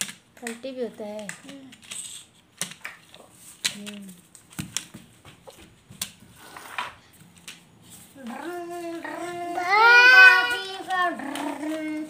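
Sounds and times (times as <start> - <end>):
child's voice: 8.2 - 12.0.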